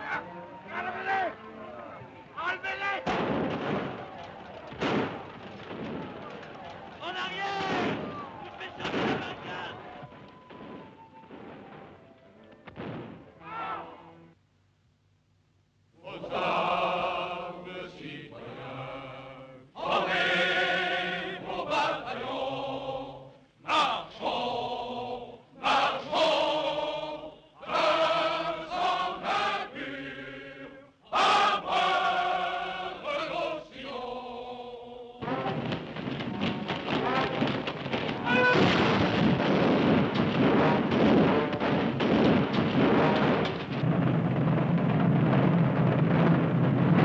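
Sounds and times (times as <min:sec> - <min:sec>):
choir singing: 0:16.0 - 0:35.7.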